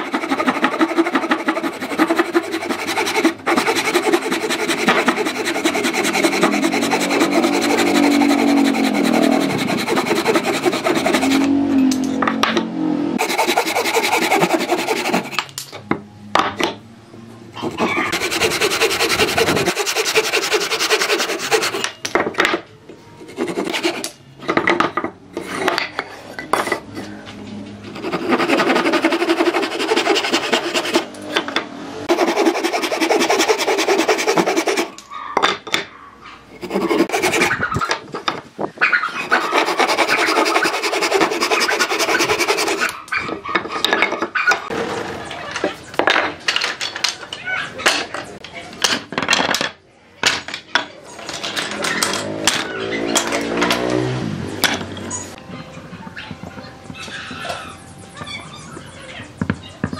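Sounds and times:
handsaw cutting wood: 0.0 - 11.6, 13.2 - 15.5, 17.7 - 21.9, 23.2 - 24.2, 27.9 - 31.1, 32.0 - 35.0, 36.5 - 37.8, 39.2 - 43.0.

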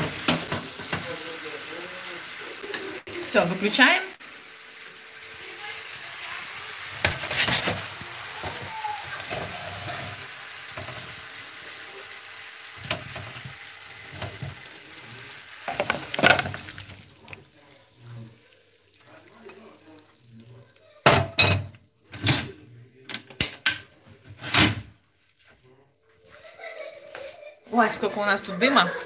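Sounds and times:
fruit sizzling in caramel: 0.0 - 21.1
spatula scraping a pan: 6.7 - 11.3.

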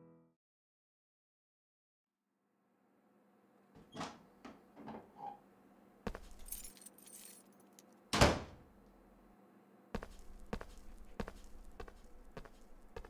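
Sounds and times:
flip-flop footsteps on tile: 6.1 - 6.7, 10.0 - 13.0
keys jingling: 6.1 - 8.0.

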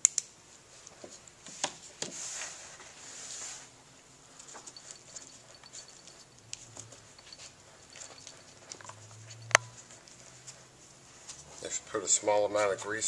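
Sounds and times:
soft clicks and rustles: 4.3 - 11.8.

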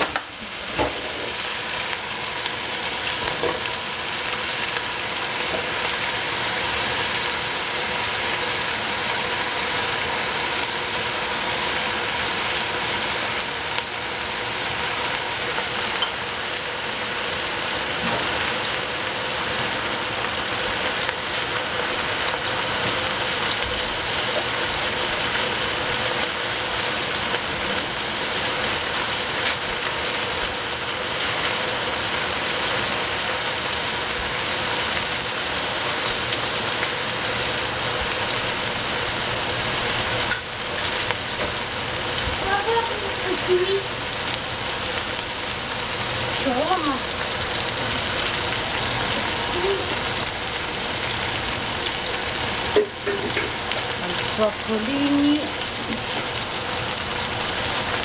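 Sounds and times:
vegetables sizzling in a pan: 0.0 - 58.0.

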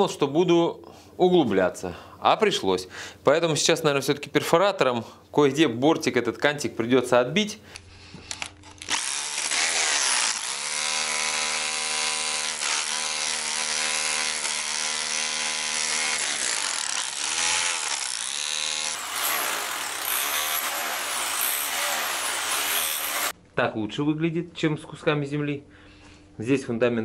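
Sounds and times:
rotary hammer chiselling concrete: 8.9 - 23.3.

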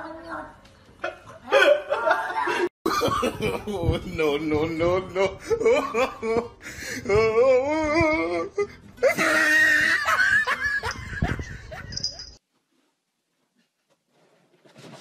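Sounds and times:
person laughing: 1.0 - 4.2, 4.8 - 12.4.

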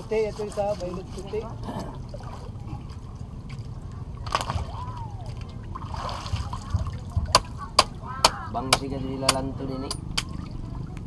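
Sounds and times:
seawater sloshing and splashing: 0.0 - 8.5.

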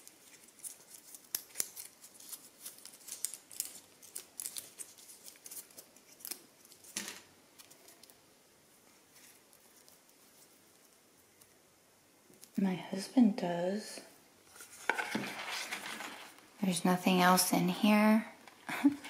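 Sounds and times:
cable clicking and rustling: 14.6 - 16.5.

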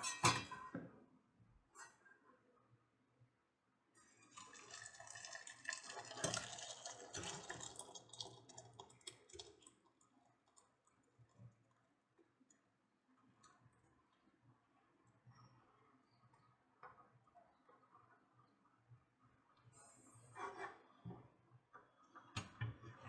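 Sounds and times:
liquid splashing into pot: 4.2 - 10.7.

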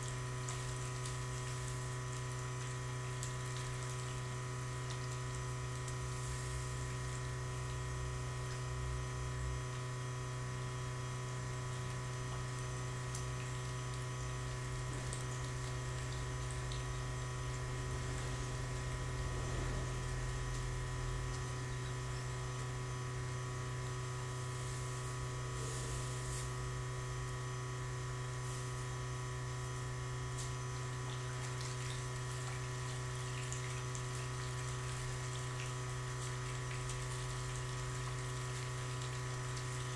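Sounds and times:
electric motor hum: 0.0 - 39.9.

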